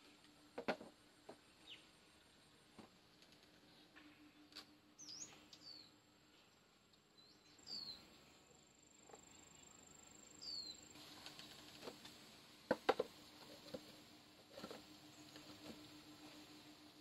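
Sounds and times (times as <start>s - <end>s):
falling bird chirp: 4.0s - 5.9s, 9.5s - 11.7s
high insect tone: 7.6s - 17.0s.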